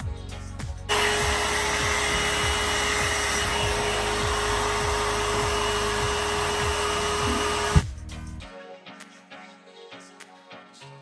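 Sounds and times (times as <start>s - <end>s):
hot-air brush blowing: 0.9s - 7.8s.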